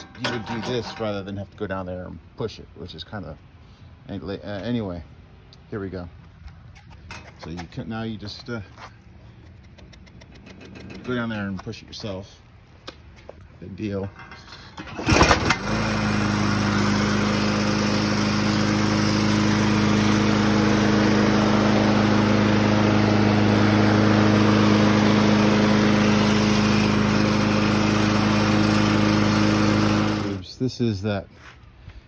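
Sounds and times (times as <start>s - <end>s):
lawn mower engine running: 0.0s - 1.4s, 9.1s - 12.5s, 14.0s - 30.5s
recoil starter rope pull: 9.4s - 11.6s, 14.2s - 30.4s.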